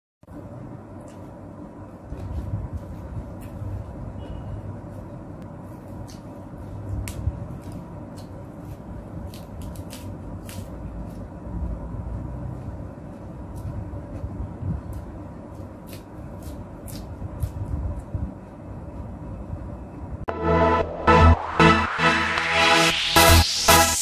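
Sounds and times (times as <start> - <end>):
steady low rumble: 0.3 - 9.3, 17.1 - 24.0
faint hum: 0.3 - 9.6.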